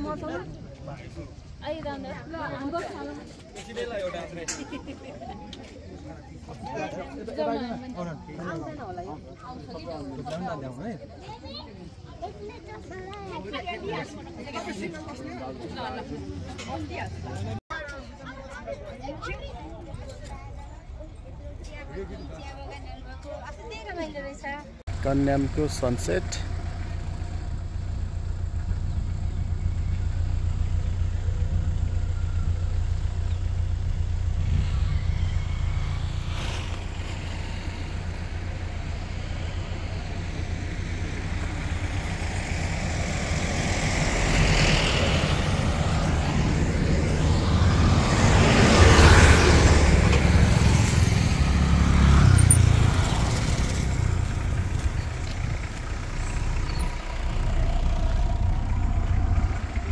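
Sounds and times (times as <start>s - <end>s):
car engine and road noise: 0.0s - 59.9s
rushing swell: 34.0s - 59.9s.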